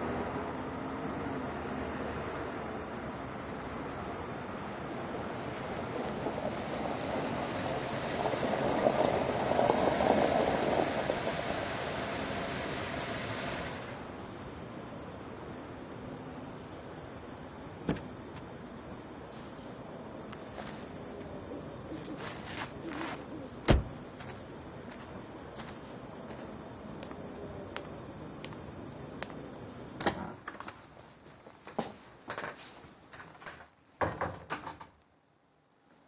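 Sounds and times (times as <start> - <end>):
crickets chirping: 0.0 - 34.3
car door shutting: 17.8 - 18.1, 23.6 - 24.0
light footsteps: 22.0 - 27.2
house door being handled: 23.7 - 24.0.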